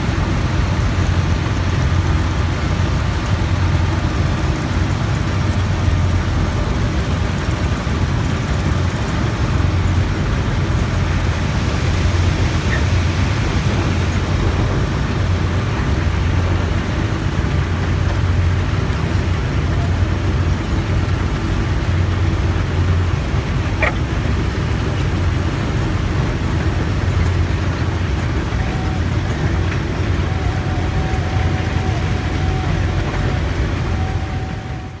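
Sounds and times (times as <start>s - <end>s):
conveyor mechanical rumble: 0.0s - 35.0s
heavy engine drone: 0.0s - 35.0s.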